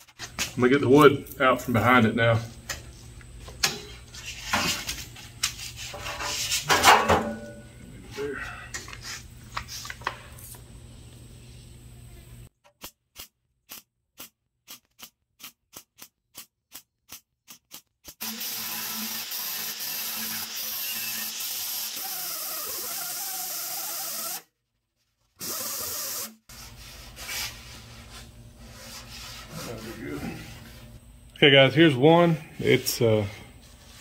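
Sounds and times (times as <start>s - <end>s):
angle grinder grinding: 18.1s - 24.5s.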